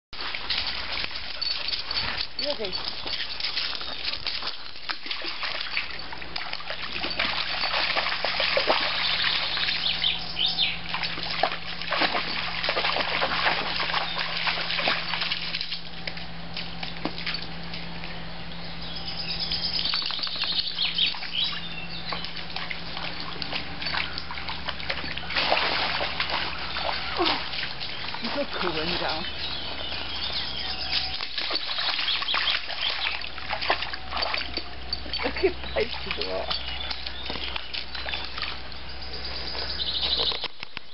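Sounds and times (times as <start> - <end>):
water sloshing and splashing: 0.2 - 18.2, 19.7 - 39.3
birds chirping: 1.2 - 12.6, 13.6 - 40.9.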